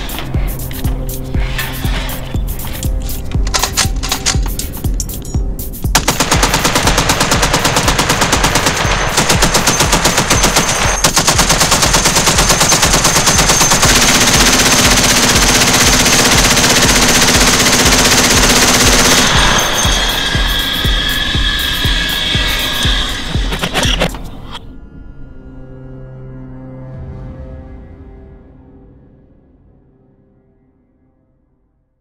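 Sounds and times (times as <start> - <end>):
machine gun automatic bursts: 5.9 - 20.3.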